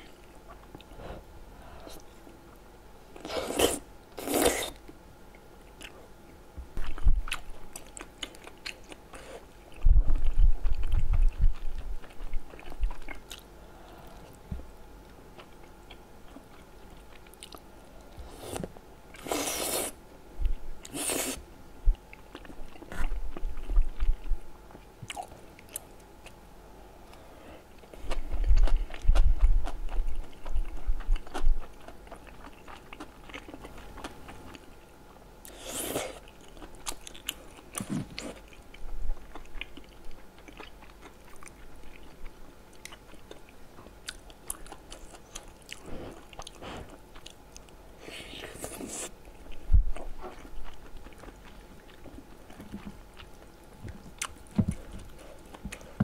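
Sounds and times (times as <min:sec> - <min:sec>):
wet chewing: 0:06.8 - 0:14.4, 0:27.8 - 0:47.8, 0:48.4 - 0:56.0.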